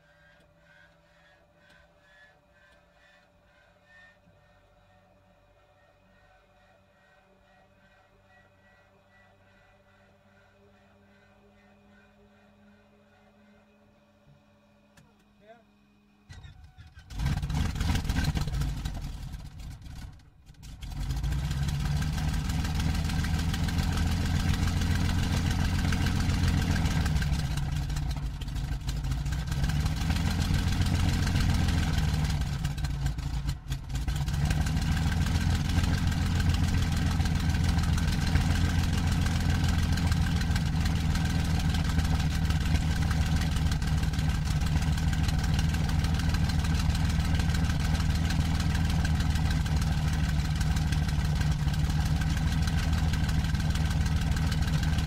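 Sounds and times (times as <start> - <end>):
starter whine: 0.0 - 55.0
aircraft engine idling: 16.1 - 55.0.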